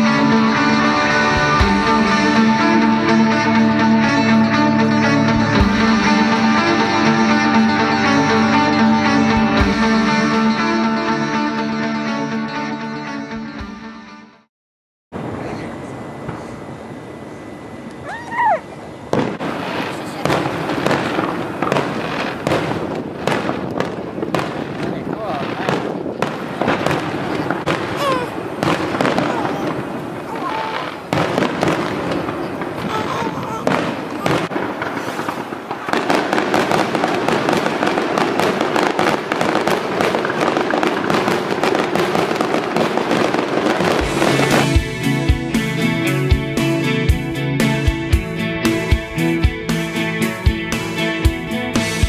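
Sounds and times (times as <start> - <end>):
fireworks bangs: 0.0 - 10.5, 15.2 - 16.9, 18.9 - 45.9
fireworks crackle: 19.1 - 46.2.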